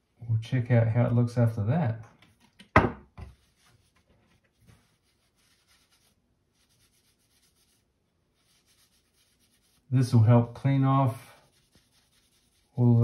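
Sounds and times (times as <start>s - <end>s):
paper tissue rustling: 3.4s - 10.1s, 11.0s - 13.0s.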